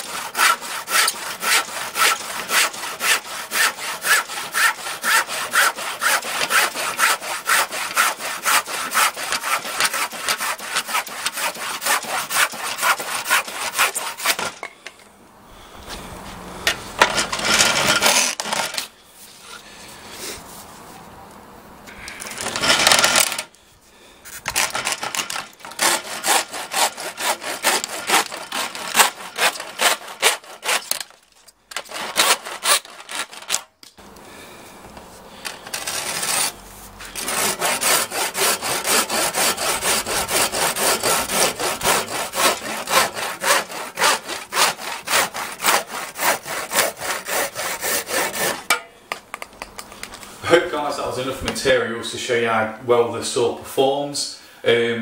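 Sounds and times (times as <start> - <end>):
hand saw cutting plastic: 0.0 - 14.7, 16.7 - 18.9, 22.2 - 23.5, 24.3 - 33.7, 35.4 - 48.9.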